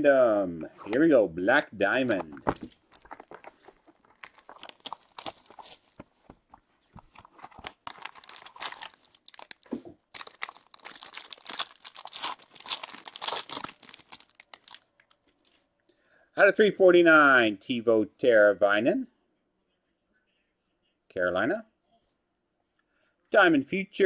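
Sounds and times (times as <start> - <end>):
plastic packaging crinkling and tearing: 2.0 - 15.2.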